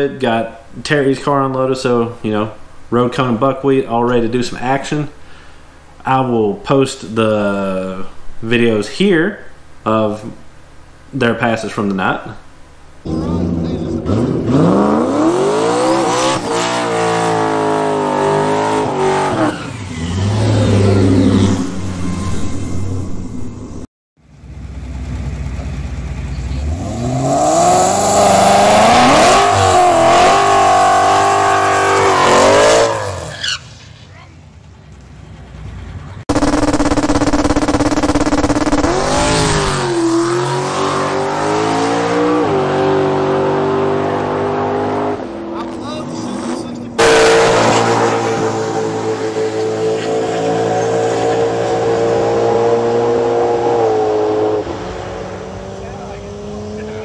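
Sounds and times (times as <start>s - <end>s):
drag car engine revving: 13.0s - 23.2s, 25.9s - 33.6s, 36.3s - 57.0s.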